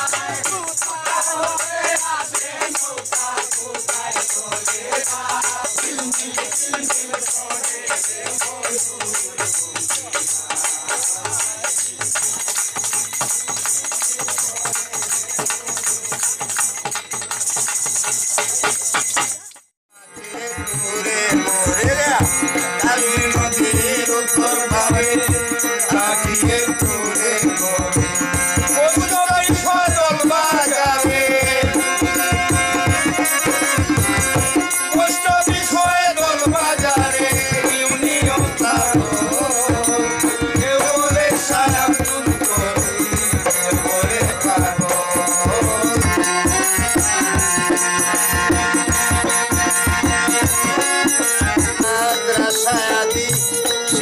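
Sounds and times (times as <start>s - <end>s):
man singing: 0.0s - 12.5s, 13.6s - 16.6s, 19.9s - 54.0s
drum beating steady rhythm: 0.0s - 54.0s
rattling hand percussion: 0.0s - 54.0s.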